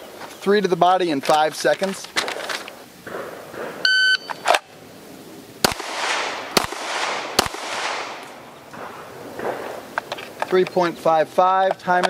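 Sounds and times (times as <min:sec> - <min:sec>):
shot timer beep: 0:03.9 - 0:04.4
handgun shots with echo: 0:05.6 - 0:09.7.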